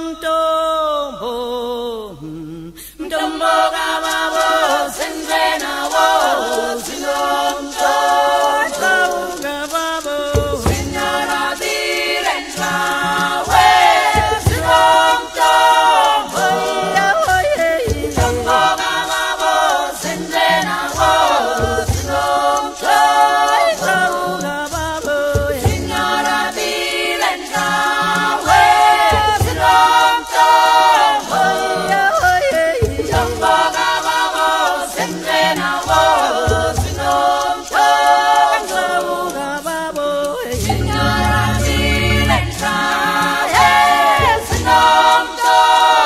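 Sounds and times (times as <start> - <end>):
choir singing in harmony: 3.0 - 46.0
deep bass voices: 40.6 - 42.9.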